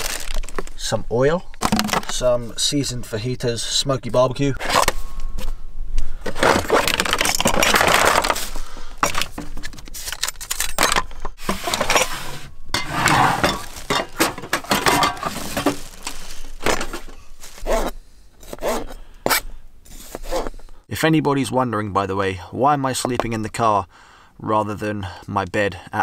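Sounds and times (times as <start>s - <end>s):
rustling: 11.4s - 20.8s.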